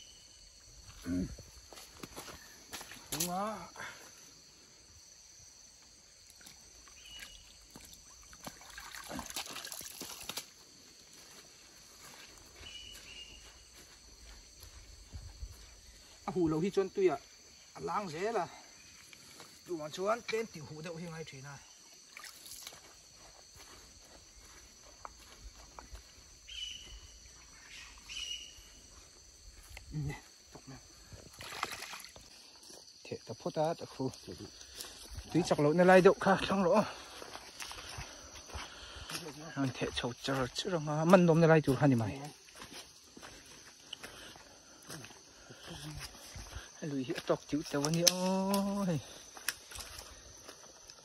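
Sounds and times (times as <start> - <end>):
water sloshing and dripping: 6.4 - 10.6, 22.0 - 22.9, 31.2 - 32.4.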